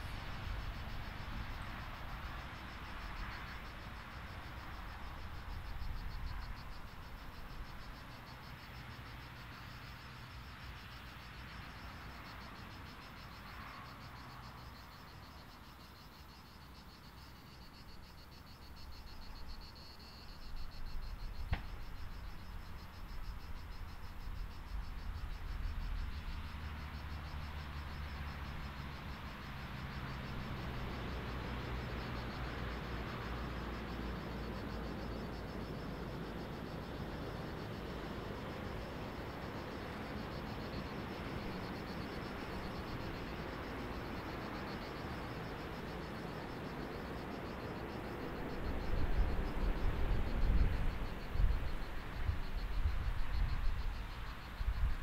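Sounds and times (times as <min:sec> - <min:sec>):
insects chirring: 0:00.0 - 0:55.0.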